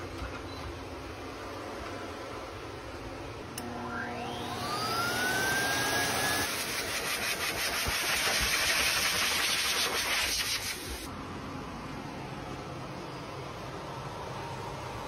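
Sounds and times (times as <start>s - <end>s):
dryer motor whine: 3.4s - 12.6s.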